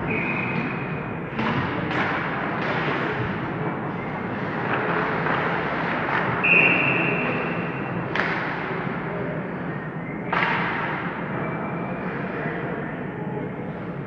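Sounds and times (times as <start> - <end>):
knocks against rink boards: 0.6 - 3.5, 4.4 - 6.7, 8.1 - 8.9, 10.3 - 11.1
referee's whistle blast: 6.4 - 7.3.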